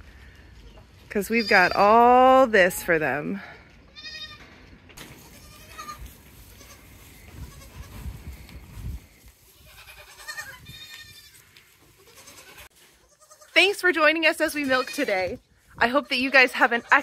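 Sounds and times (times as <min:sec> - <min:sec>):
goats bleating: 0:03.9 - 0:04.4, 0:05.2 - 0:08.0, 0:09.5 - 0:13.6, 0:14.6 - 0:17.0.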